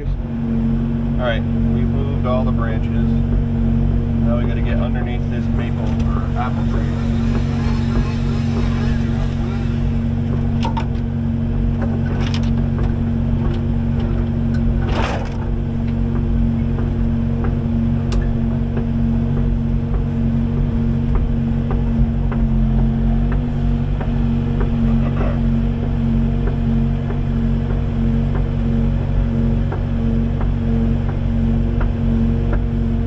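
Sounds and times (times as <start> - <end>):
excavator diesel engine running: 0.0 - 33.0
rush of noise: 5.2 - 10.8.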